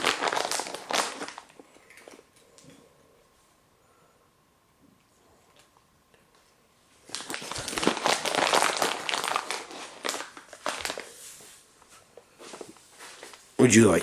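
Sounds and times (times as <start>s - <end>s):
plastic bag crinkling: 0.0s - 2.2s, 7.0s - 11.6s.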